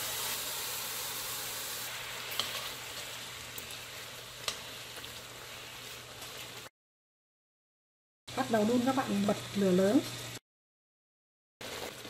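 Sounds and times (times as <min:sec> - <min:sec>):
sugar pouring hiss: 0:00.0 - 0:04.2.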